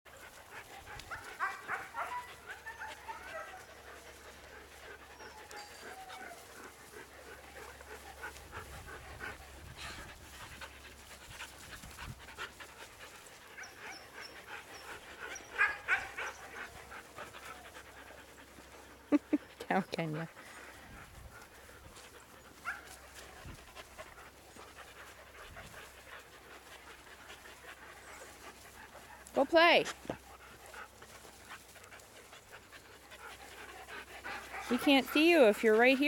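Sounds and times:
dogs panting: 0:00.1 - 0:36.0
dogs whining: 0:05.2 - 0:06.5.

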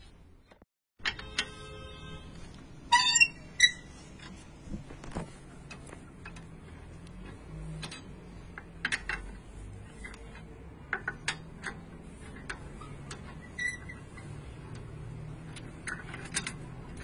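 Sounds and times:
wheel wrench clicking: 0:05.7 - 0:09.4, 0:10.0 - 0:17.0.

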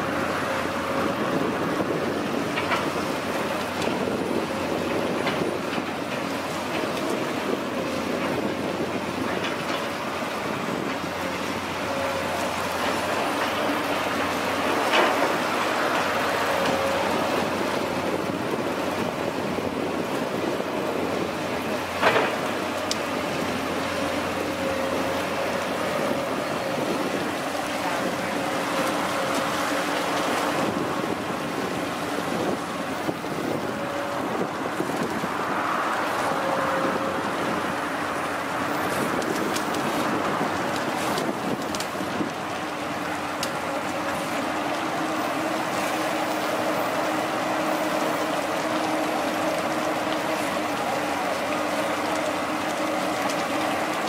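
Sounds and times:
excavator engine and hydraulics: 0:00.0 - 0:54.0.

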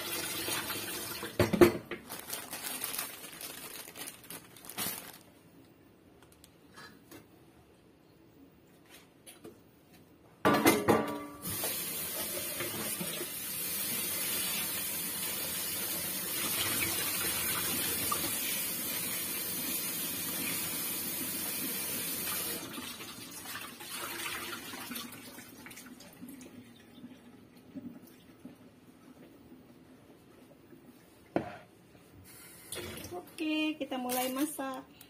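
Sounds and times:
tap running into colander: 0:11.4 - 0:13.3.

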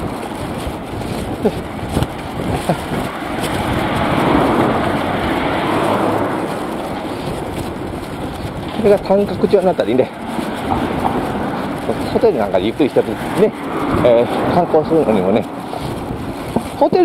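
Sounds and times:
car passing: 0:00.0 - 0:17.0.

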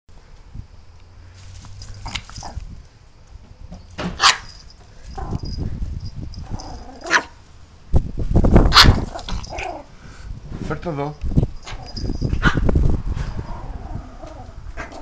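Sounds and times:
low rumbling noise: 0:00.1 - 0:15.0
small dog yapping: 0:04.2 - 0:04.5, 0:06.5 - 0:07.4, 0:08.7 - 0:09.9.

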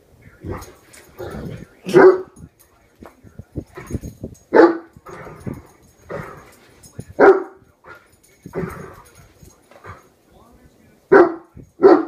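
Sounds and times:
dog barking: 0:00.4 - 0:02.5, 0:03.7 - 0:10.1, 0:11.1 - 0:12.0.

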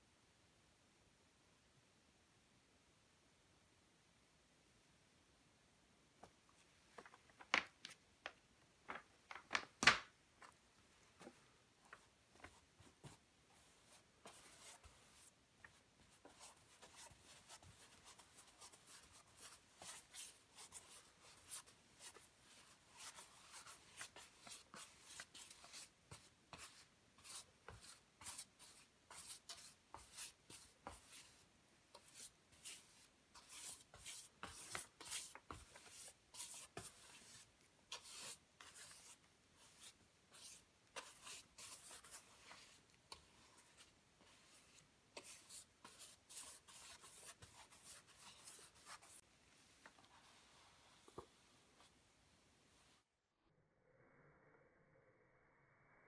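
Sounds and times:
scratchy brush strokes on canvas: 0:11.1 - 0:52.0.

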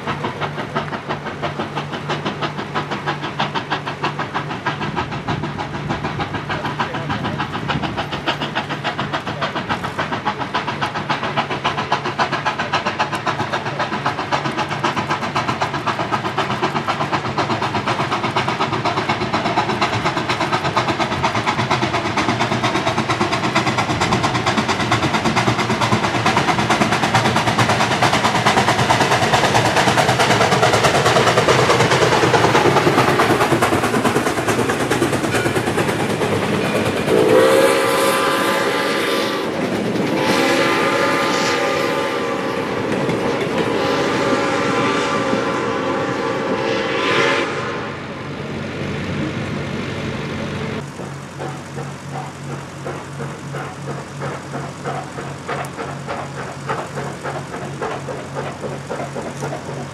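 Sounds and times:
freight cars rolling: 0:00.0 - 0:38.8, 0:48.1 - 0:59.9
steam locomotive exhaust chuffs: 0:00.0 - 0:59.9
steam whistle: 0:37.1 - 0:48.0.

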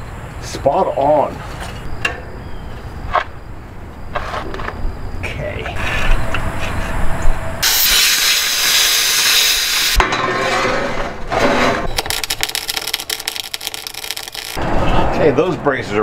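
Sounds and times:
loud even hiss: 0:07.6 - 0:10.0
welder crackling: 0:07.6 - 0:10.0, 0:11.9 - 0:14.6.

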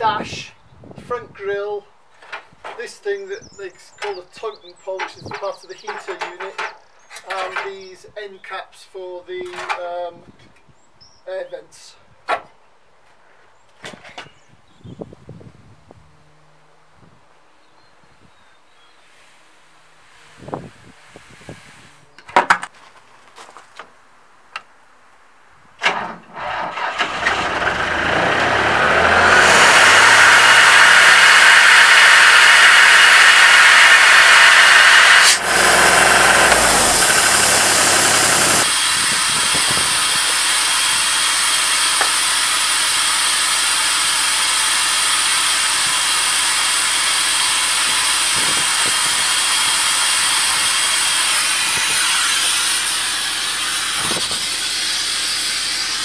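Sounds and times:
diesel air compressor running: 0:26.5 - 0:56.0
high air hiss: 0:29.2 - 0:56.0.

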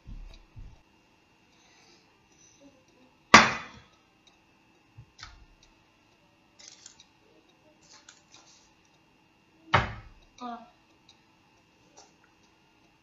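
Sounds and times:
faint knocks and rustles: 0:00.0 - 0:00.8.

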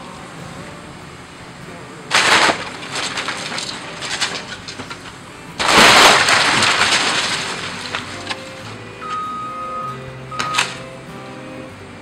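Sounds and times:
excavator engine running: 0:00.0 - 0:12.0
splintering wood crash: 0:02.1 - 0:09.3, 0:10.4 - 0:10.8
debris crackling and clattering: 0:02.1 - 0:09.6, 0:10.3 - 0:10.8.

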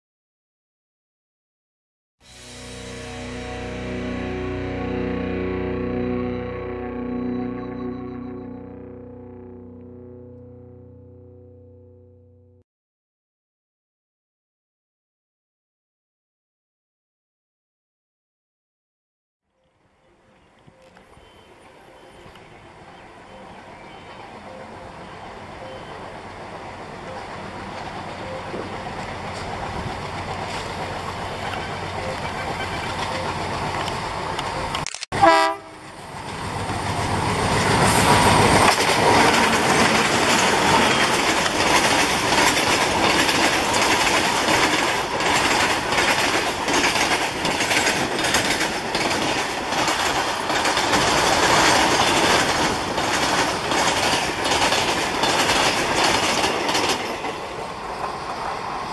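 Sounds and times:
diesel locomotive engine drone: 0:02.3 - 0:12.6, 0:19.7 - 0:58.9
locomotive horn blast: 0:02.3 - 0:12.6, 0:35.2 - 0:36.0
wagon wheels clacking over rail joints: 0:38.5 - 0:58.5.

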